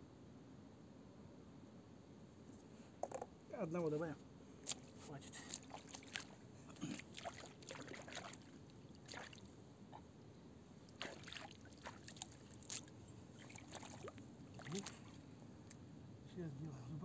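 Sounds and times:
hands splashing in shallow water: 4.6 - 9.5, 10.9 - 15.2.

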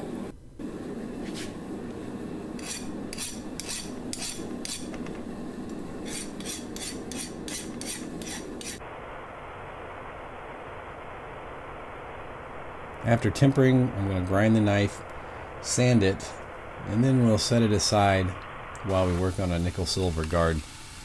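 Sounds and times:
file scraping steel blade: 2.6 - 4.9, 6.0 - 8.8
belt grinder hissing on blade: 6.0 - 8.8.

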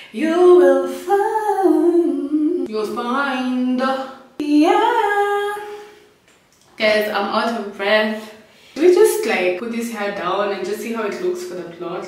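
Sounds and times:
woman singing unaccompanied: 0.0 - 6.0.

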